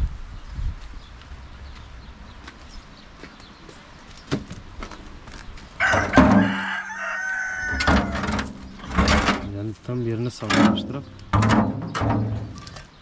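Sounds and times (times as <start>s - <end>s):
rooster crowing: 5.8s - 8.3s.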